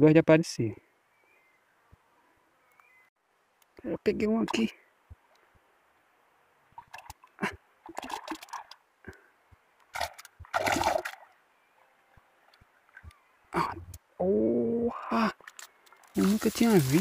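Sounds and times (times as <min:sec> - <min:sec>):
shallow water splashing: 0:09.9 - 0:11.3, 0:15.5 - 0:17.0.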